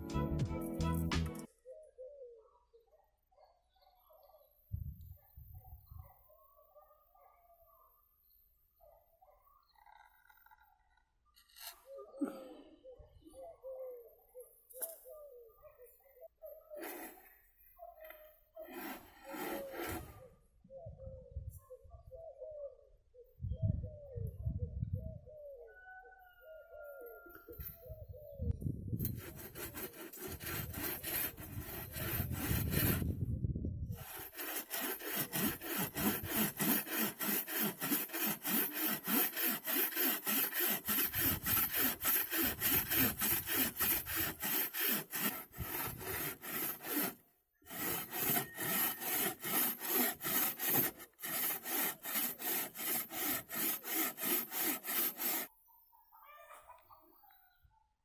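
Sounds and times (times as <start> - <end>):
bow saw cutting wood: 11.4 - 11.9, 16.8 - 17.3, 18.6 - 20.2, 29.0 - 33.2, 33.9 - 55.5.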